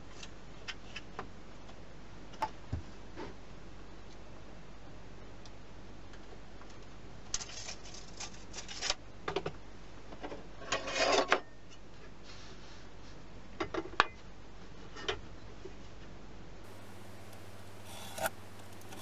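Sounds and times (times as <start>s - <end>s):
hand tool scraping wood: 16.7s - 19.0s
rasping stroke on wood: 16.7s - 19.0s.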